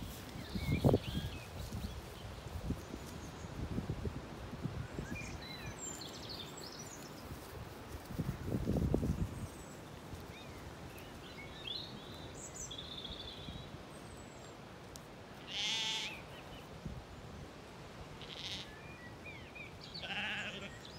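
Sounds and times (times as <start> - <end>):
lamb bleating: 15.4 - 16.2, 18.2 - 18.8, 20.0 - 20.8
small birds chirping: 18.2 - 20.9.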